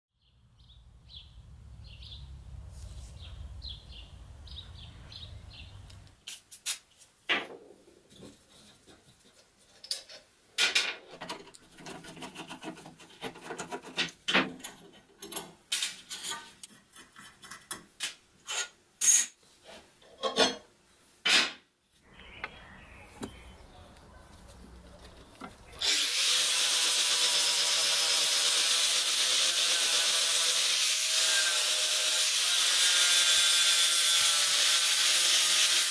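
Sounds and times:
sharp knocks and scrapes: 6.2 - 21.6
angle grinder grinding steel: 25.8 - 35.9.

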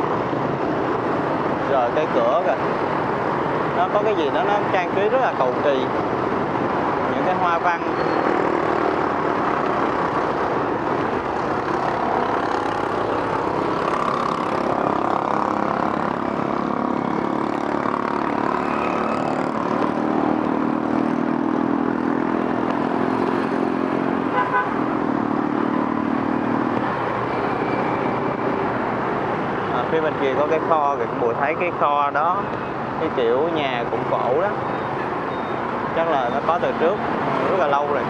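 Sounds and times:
motorbikes and cars passing: 0.0 - 38.0
steady engine or horn tone: 18.5 - 19.5, 24.0 - 24.9.

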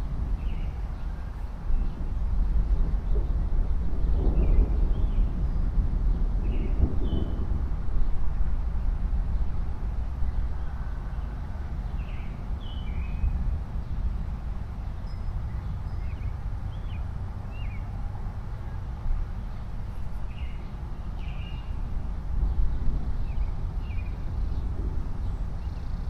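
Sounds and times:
steady low rumble: 0.0 - 26.0
small birds chirping: 10.3 - 14.1, 14.8 - 18.0, 19.4 - 21.9, 22.5 - 26.0.

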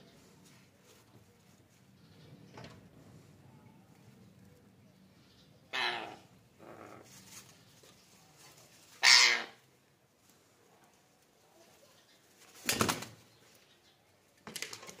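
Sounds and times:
parakeet squawk: 9.0 - 9.6
wing flapping: 12.4 - 13.2.

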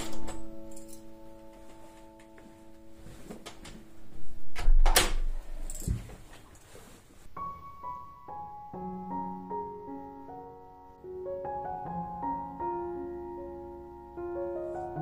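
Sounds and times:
clothes and bag rustling: 0.0 - 4.2, 5.4 - 7.4
gentle piano melody: 0.0 - 5.8, 7.3 - 15.0
soft background music: 0.0 - 15.0
door thud and knocks: 4.6 - 5.3.

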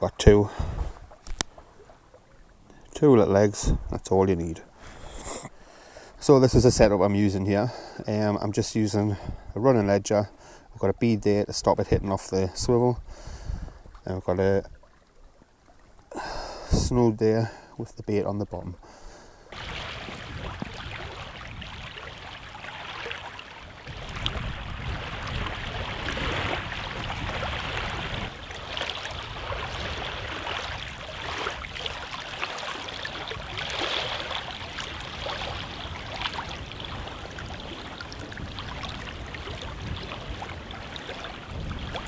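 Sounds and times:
wind gusting against microphone: 11.9 - 13.9, 19.5 - 42.0
waves lapping on stony shore: 19.4 - 42.0.

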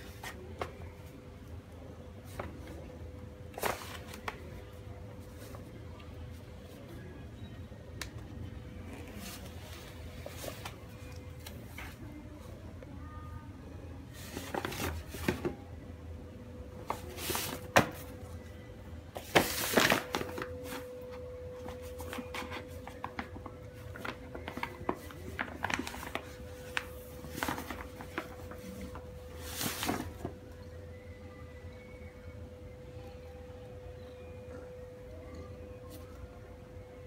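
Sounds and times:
paper bag crinkling: 19.2 - 21.0, 21.7 - 30.3.

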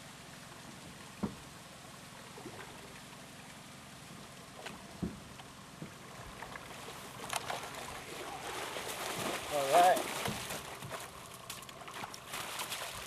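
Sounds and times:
river water flowing: 0.0 - 13.0
fish splashing: 2.2 - 13.0
dull knocks: 5.0 - 6.0.

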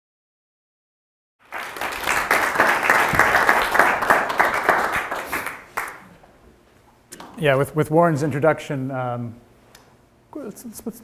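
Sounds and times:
audience applauding: 1.4 - 6.2.

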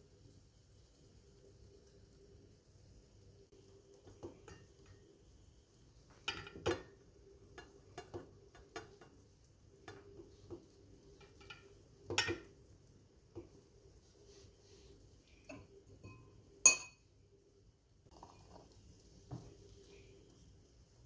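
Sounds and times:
utensil clinking on ceramic dish: 15.5 - 17.0.

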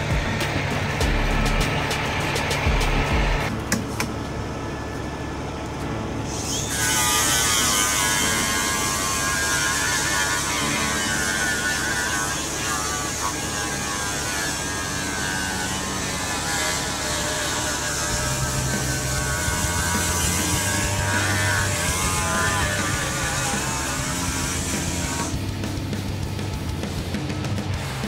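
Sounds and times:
crane engine rumble: 0.0 - 7.8
hydraulic whine: 0.0 - 28.0.

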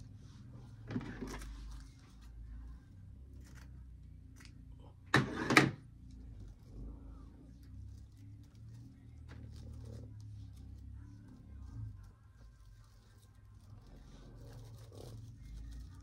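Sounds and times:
rustling of ribbon and basket: 6.0 - 16.0.

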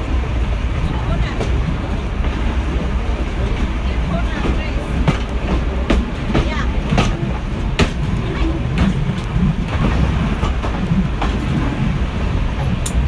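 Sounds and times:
train wheels rumbling on rails: 0.0 - 13.0
sharp clicks of rails: 12.6 - 13.0.

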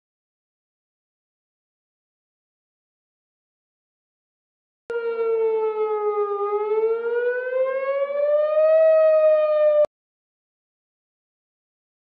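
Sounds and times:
tornado warning siren wailing: 4.9 - 9.9.

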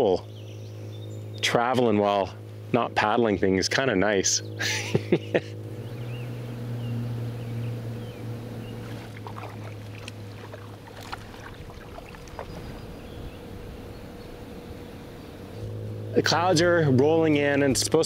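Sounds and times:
electric outboard motor hum: 0.0 - 18.0
water swishing along hull: 5.6 - 16.5.

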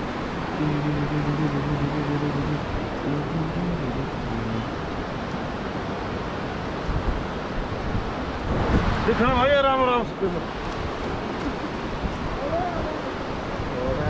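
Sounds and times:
faint steady hum: 0.0 - 5.3
river rushing: 0.0 - 14.0
wind blowing over microphone: 0.0 - 14.0.

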